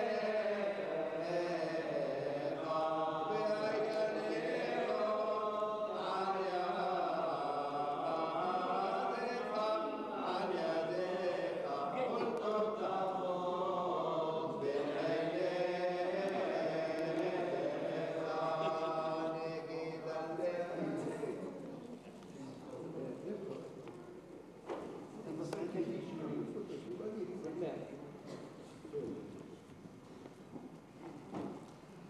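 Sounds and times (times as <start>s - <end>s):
unaccompanied liturgical chanting: 0.0s - 23.8s.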